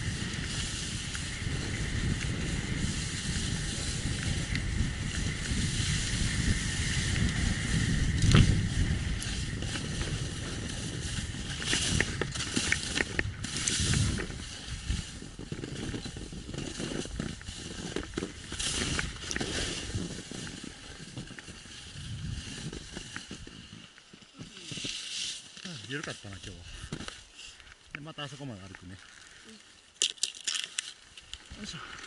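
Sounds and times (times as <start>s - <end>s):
wind rumble on microphone: 0.0s - 23.8s
skis scraping over snow: 0.0s - 29.6s.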